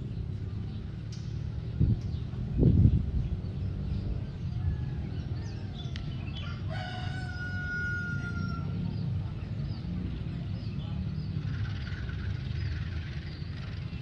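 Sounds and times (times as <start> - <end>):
steady low rumble: 0.0 - 6.7
rooster crowing: 4.6 - 8.8.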